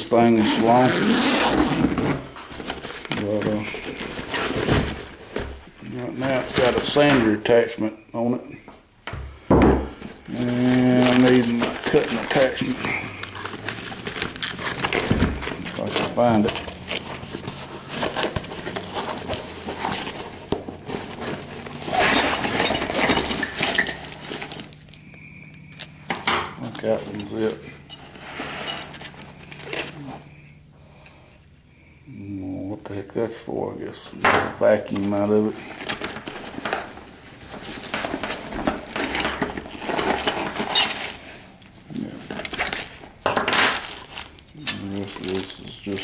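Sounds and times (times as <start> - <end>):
cloth and plastic bags rustling: 0.0 - 8.4, 9.9 - 30.4, 34.6 - 46.0
metal tool attachments clinking: 21.0 - 24.8, 26.2 - 30.0, 37.8 - 41.2, 42.3 - 46.0.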